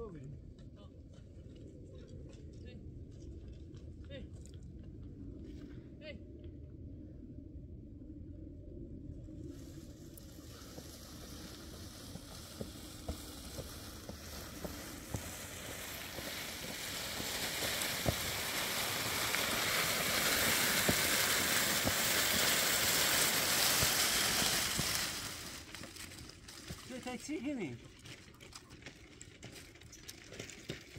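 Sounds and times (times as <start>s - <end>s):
rushing hiss: 10.2s - 25.8s
footsteps on loose stones: 10.3s - 30.9s.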